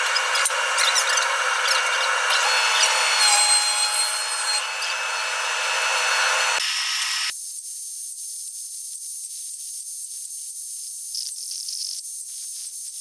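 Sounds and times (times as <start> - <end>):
high whining tones: 0.0 - 7.3
thickness planer cutting wood: 0.0 - 7.3.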